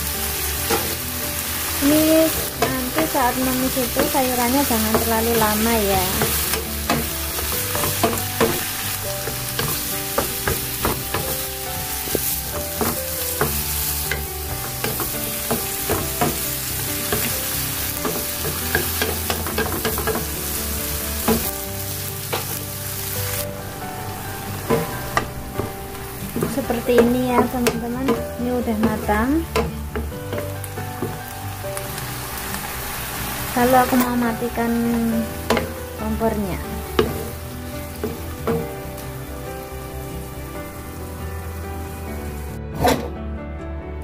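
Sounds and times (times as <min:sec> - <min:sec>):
food sizzling in hot oil: 0:00.0 - 0:43.0
wooden spatula scraping pan: 0:01.7 - 0:23.6.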